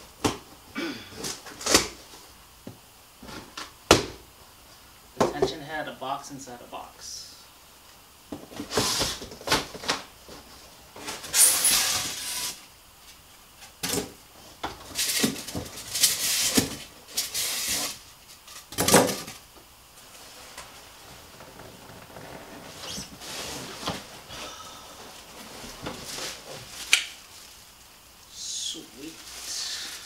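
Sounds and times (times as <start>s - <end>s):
cardboard and foam rustling: 20.0s - 27.8s.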